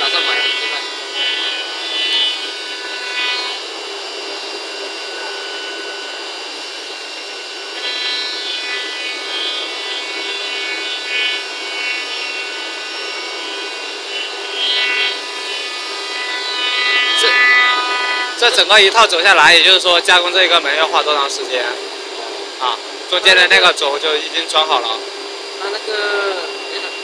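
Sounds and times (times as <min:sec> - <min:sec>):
cutter rasping in wood: 0:00.0 - 0:03.8, 0:04.6 - 0:19.4
router spindle whining: 0:00.0 - 0:27.0.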